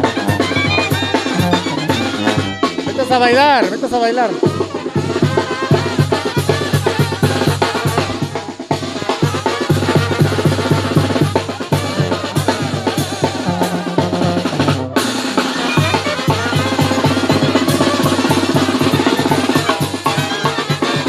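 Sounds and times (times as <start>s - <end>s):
trombones: 0.0s - 3.8s, 4.4s - 21.0s
bass drum and snare beat: 0.0s - 21.0s
sousaphone bass line: 0.1s - 4.5s.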